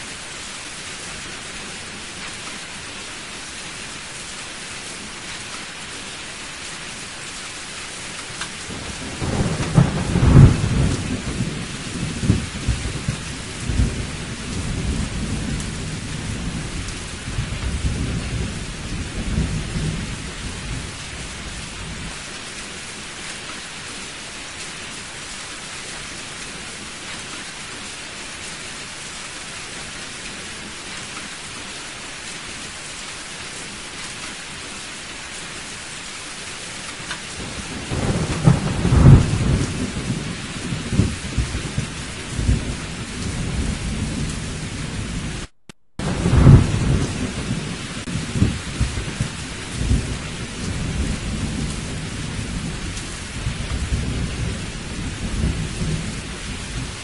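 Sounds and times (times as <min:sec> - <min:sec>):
heavy rain: 0:00.0 - 0:57.0
rolling thunder: 0:08.7 - 0:22.2, 0:37.4 - 0:57.0.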